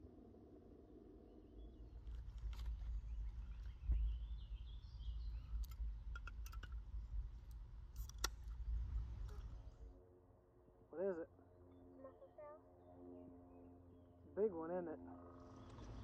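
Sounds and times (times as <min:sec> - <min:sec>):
faint bird chirps: 0:01.5 - 0:06.7
sharp knocks and clicks: 0:05.6 - 0:06.8.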